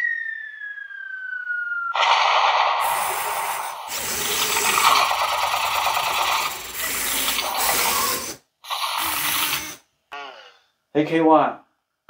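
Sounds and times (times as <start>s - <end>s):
robot servo motors whirring: 2.8s - 9.8s.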